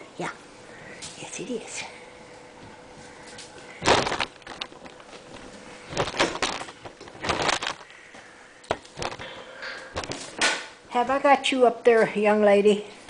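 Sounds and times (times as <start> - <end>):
plastic toy crinkling: 3.8 - 7.9, 8.7 - 9.3.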